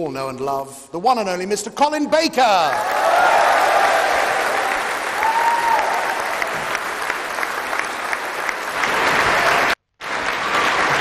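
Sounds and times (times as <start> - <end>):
audience applauding: 2.7 - 11.0.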